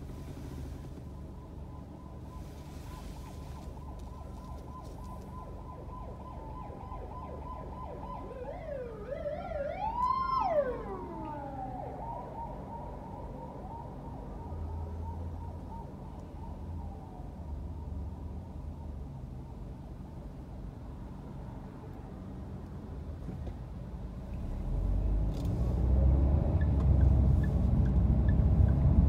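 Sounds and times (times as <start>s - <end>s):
low traffic hum: 0.0s - 29.0s
emergency siren wailing: 1.0s - 18.2s.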